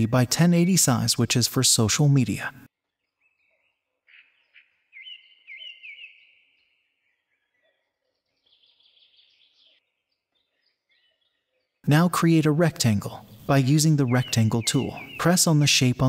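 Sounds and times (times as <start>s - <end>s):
faint bird chirps: 2.7s - 12.1s, 12.7s - 16.0s.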